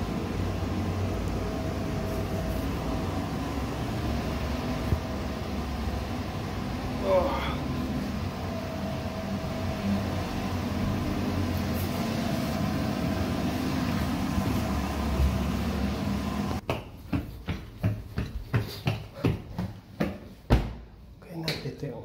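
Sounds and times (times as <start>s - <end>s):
machinery humming: 0.0s - 16.6s
footsteps climbing stairs: 13.4s - 21.6s.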